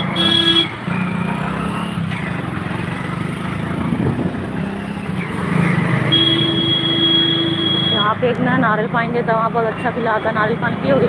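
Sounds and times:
vehicle horn: 0.0 - 0.8, 6.1 - 8.1
scooter engine running: 0.0 - 9.8
road noise: 0.0 - 11.0.

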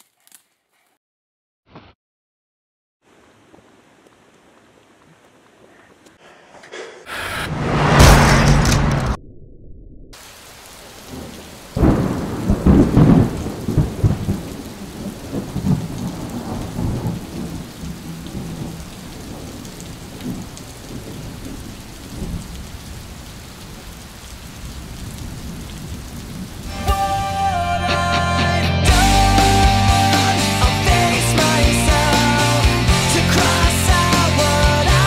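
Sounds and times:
steady rain: 3.0 - 6.4, 10.2 - 27.6
crackling thunderclap rumbling: 7.8 - 23.4, 24.3 - 26.7.

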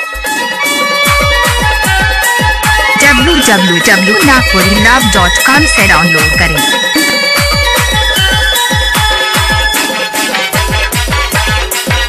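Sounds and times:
held high melody: 2.9 - 9.7.

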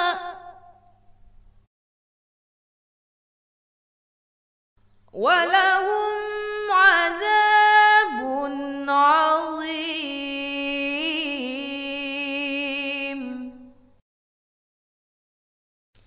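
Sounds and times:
person chanting a recitation: 5.2 - 13.7.

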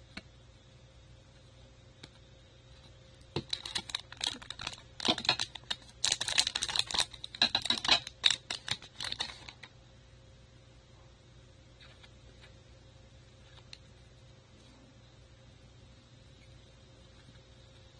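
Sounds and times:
trading cards clicking and rustling: 3.3 - 9.7.

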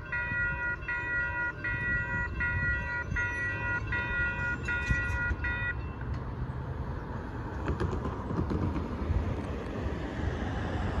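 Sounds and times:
railroad crossing warning bell: 0.0 - 6.2.

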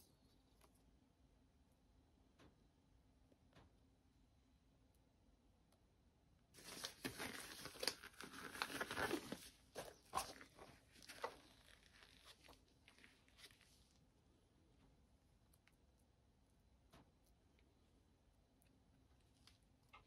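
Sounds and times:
rubber gloves crinkling and snapping: 6.6 - 14.1, 19.1 - 20.0.

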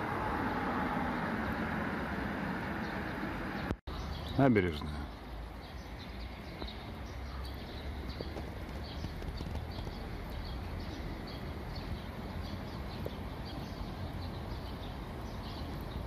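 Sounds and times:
low outdoor rumble: 0.0 - 4.1
footsteps on pavement: 6.3 - 6.9, 7.5 - 16.0.

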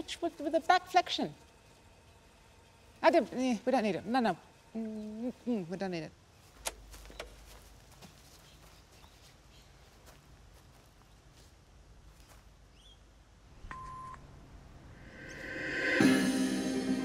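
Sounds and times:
music: 15.0 - 17.0.

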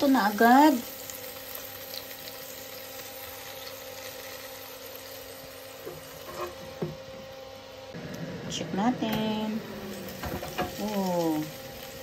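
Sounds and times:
air fryer humming and hissing: 0.0 - 12.0.

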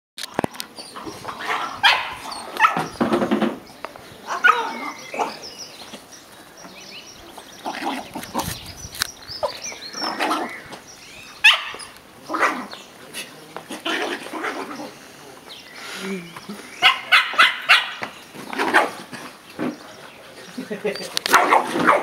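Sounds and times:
dogs barking: 0.9 - 3.0, 4.3 - 5.5, 11.4 - 12.8, 16.8 - 19.1, 21.3 - 22.0.

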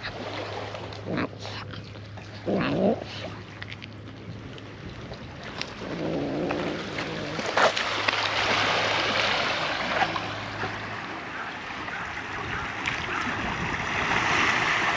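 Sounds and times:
waves washing over pebbles: 5.6 - 14.9.

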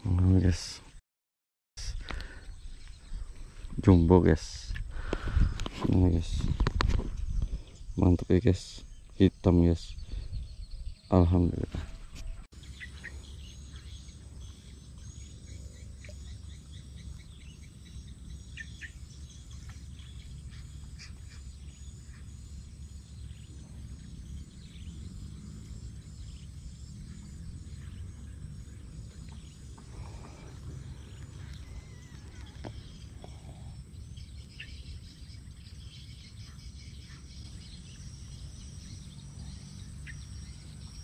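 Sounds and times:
low wind rumble: 1.8 - 35.9
high thin chirping call: 12.2 - 41.0.

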